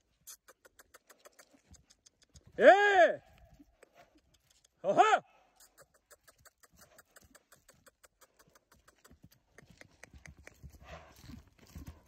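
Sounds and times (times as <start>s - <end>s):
horse hoofbeats on grass: 6.2s - 12.0s.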